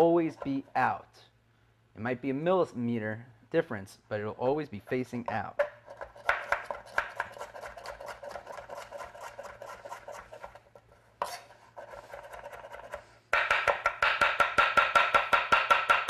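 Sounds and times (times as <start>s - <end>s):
knife chopping on cutting board: 5.6s - 10.6s, 11.2s - 16.0s.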